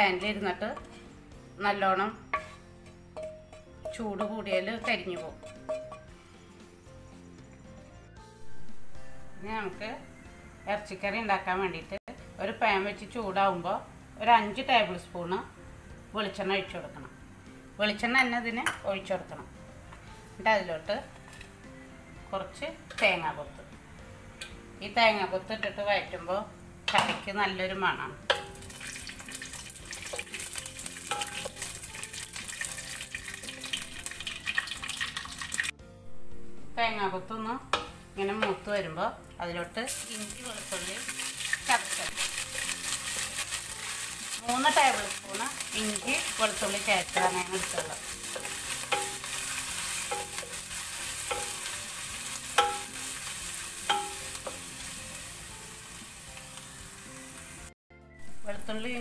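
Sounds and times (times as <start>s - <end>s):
food sizzling in hot oil: 0.0s - 7.5s, 24.4s - 35.8s, 39.8s - 59.0s.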